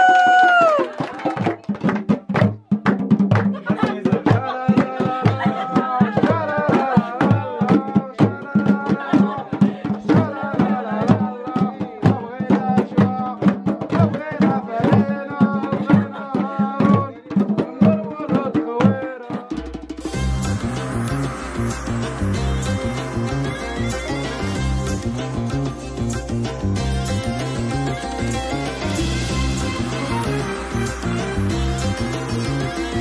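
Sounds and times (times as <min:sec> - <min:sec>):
hand drums beating: 0:00.0 - 0:33.0
people singing: 0:03.7 - 0:13.3.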